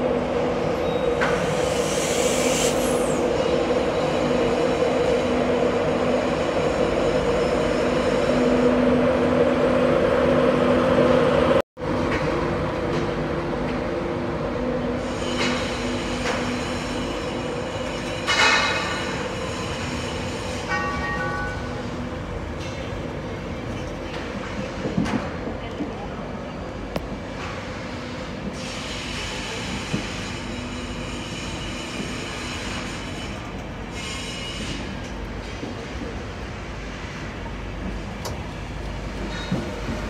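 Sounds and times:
train coaches rolling past: 0.0 - 40.0.

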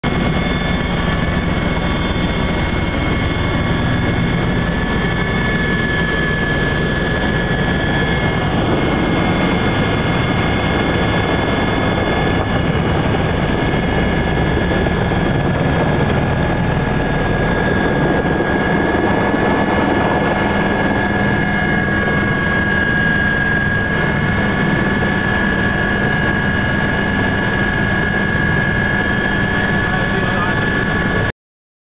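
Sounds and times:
helicopter engine and rotor: 0.0 - 31.3.

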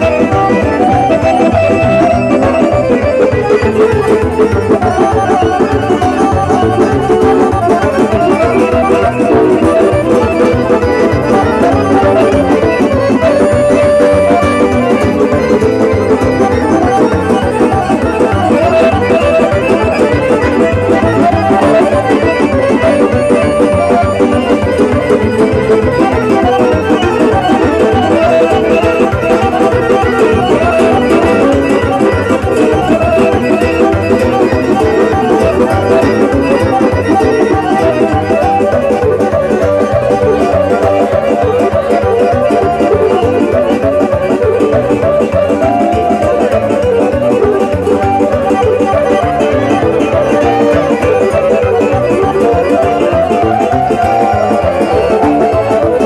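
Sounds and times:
accordion: 0.0 - 56.0
electronic keyboards: 0.0 - 56.0
folk music through loud speakers: 0.0 - 56.0.

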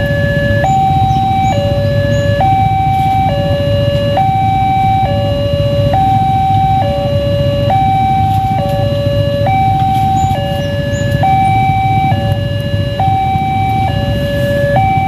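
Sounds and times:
level-crossing two-tone alarm: 0.0 - 15.0
motorcycles idling: 0.0 - 15.0.

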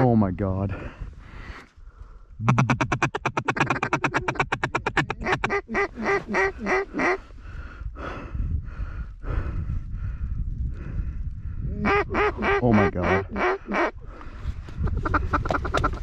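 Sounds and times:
duck call feed chuckle: 2.4 - 7.2, 15.0 - 16.0
duck call quacks: 2.4 - 7.2, 11.8 - 13.9.

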